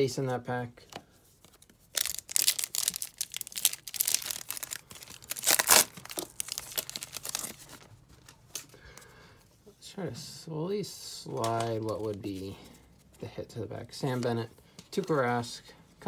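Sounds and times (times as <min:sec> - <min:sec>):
foil wrapper tearing and crinkling: 0:01.9 - 0:07.8.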